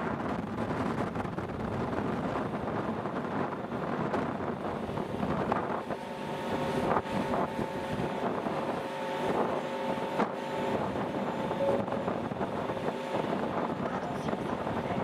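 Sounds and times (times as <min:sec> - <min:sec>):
wind buffeting microphone: 0:00.0 - 0:15.0
ship engines humming: 0:04.5 - 0:15.0.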